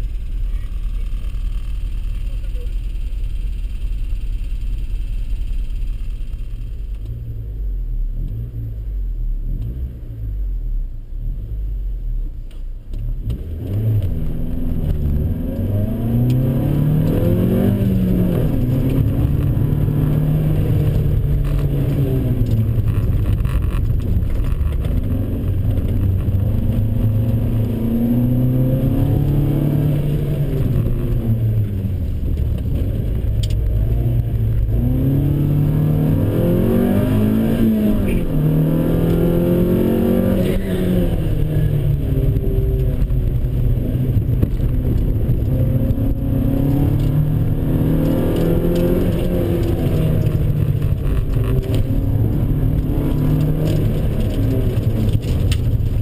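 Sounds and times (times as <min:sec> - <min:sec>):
car engine revving: 0:12.9 - 0:56.0.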